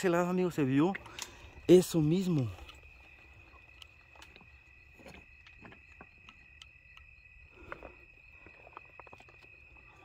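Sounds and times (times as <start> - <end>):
crickets trilling: 0.0 - 10.0
faint clicks: 0.9 - 1.5.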